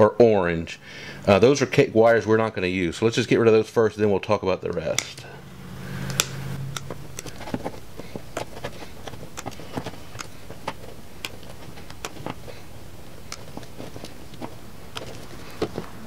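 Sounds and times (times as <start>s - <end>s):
wire cutters snipping: 4.6s - 5.3s, 6.0s - 15.9s.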